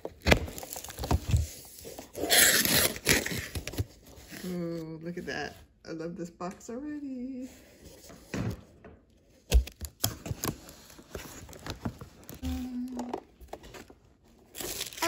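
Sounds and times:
cardboard crackles and knocks: 0.0s - 2.2s
paper rustling: 9.5s - 15.0s.

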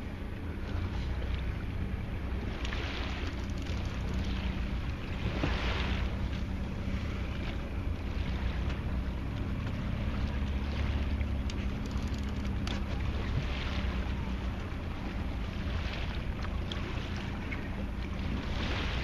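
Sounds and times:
boat engine humming: 0.0s - 19.0s
water rushing: 0.0s - 19.0s
wind: 0.0s - 19.0s.

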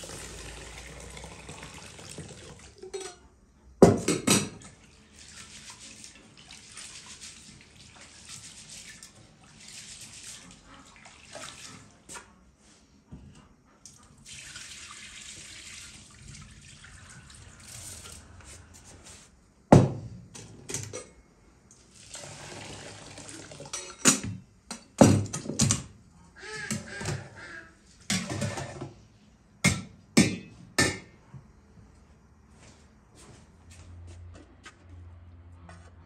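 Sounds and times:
water pouring over rice: 0.0s - 2.8s, 4.9s - 11.9s, 14.2s - 18.3s, 21.8s - 23.8s.

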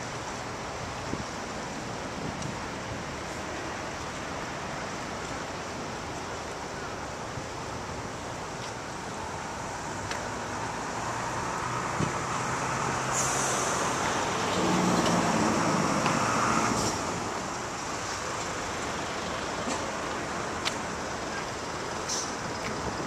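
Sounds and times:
road traffic noise: 0.0s - 23.0s
large vehicle engine passing: 11.1s - 17.5s
brief hiss: 13.1s - 13.9s, 22.1s - 22.4s.

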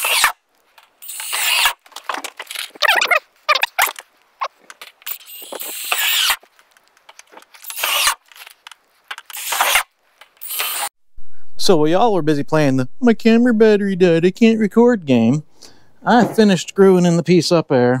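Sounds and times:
screws squealing in metal: 1.0s - 1.8s, 5.1s - 6.4s, 10.4s - 10.9s.

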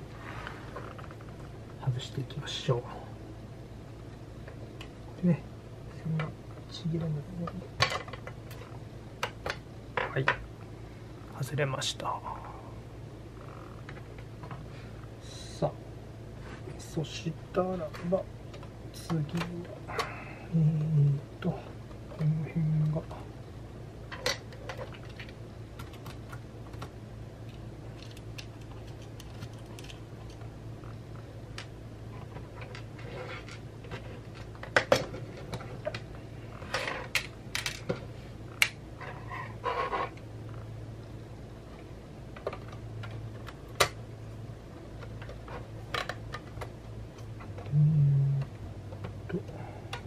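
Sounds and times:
low steady hum: 0.0s - 50.0s
clicks of small computer parts: 27.5s - 30.4s.

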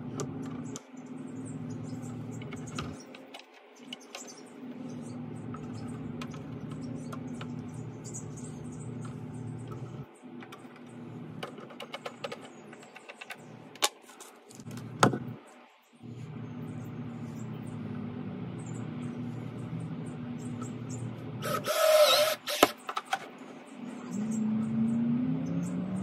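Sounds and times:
low hum: 14.7s - 22.6s.

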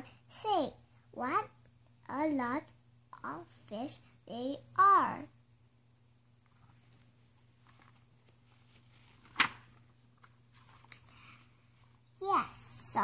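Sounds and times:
paper rustling: 6.4s - 12.0s
page snapping: 9.2s - 11.0s.

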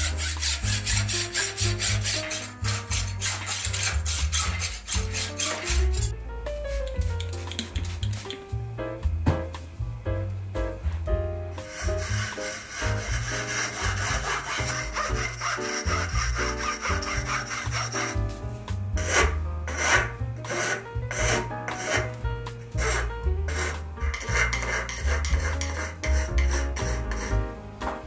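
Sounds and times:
hand saw rasping through tube: 0.0s - 6.1s, 11.6s - 18.2s, 19.0s - 27.4s
background music with bass line: 0.0s - 28.0s.

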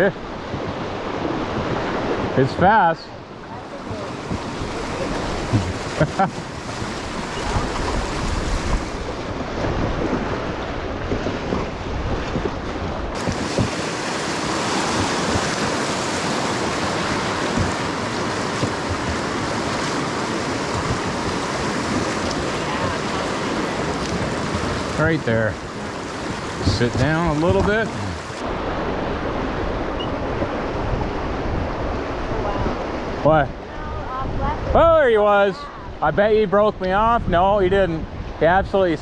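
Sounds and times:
river water rushing: 0.0s - 36.1s
wind on microphone: 3.6s - 25.0s, 25.7s - 33.2s.

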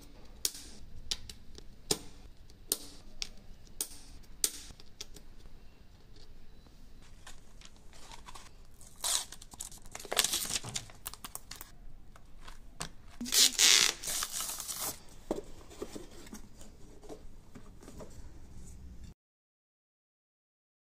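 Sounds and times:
plastic film peeling: 7.2s - 12.6s, 13.2s - 15.0s.

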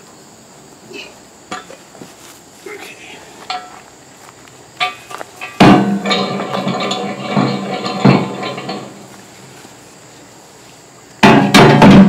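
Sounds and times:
metal fork tines clanking on bucket: 4.8s - 9.1s.

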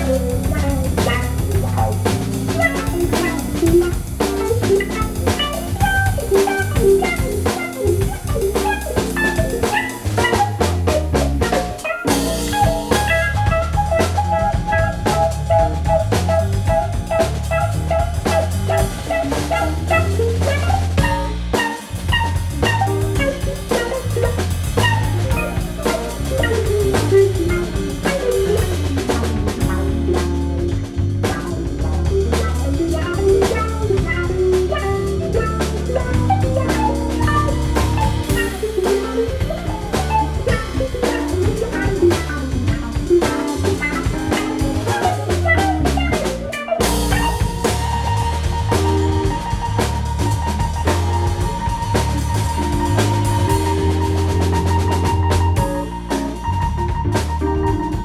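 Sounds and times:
drum kit with cymbals: 0.0s - 58.0s
guitar playing melodic lines: 0.0s - 58.0s
keyboard bass line: 0.0s - 58.0s
keyboard playing melodic lines: 0.0s - 58.0s.

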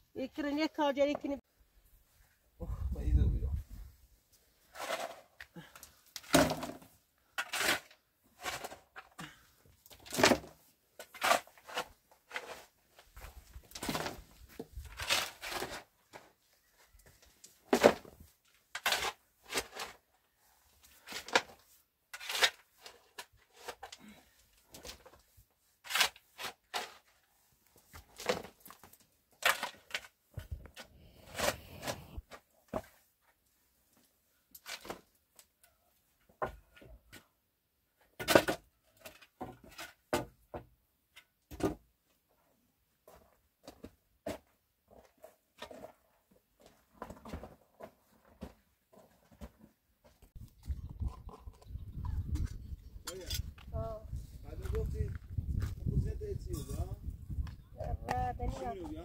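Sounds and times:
shovel scraping soil and stones: 4.6s - 9.2s, 9.9s - 16.3s, 17.7s - 20.2s, 20.8s - 24.0s, 24.7s - 32.2s, 52.6s - 53.7s
stones rattling into metal wheelbarrow: 6.2s - 9.0s.

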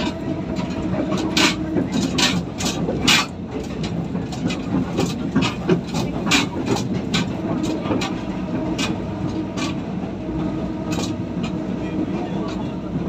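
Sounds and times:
train engine drone and rumble: 0.0s - 13.0s
wheels clicking and knocking: 0.0s - 13.0s.

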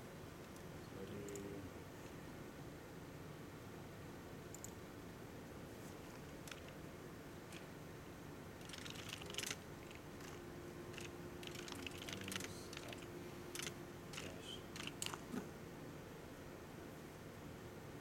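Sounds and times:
typing on computer keyboard: 6.4s - 6.8s, 8.6s - 15.2s.

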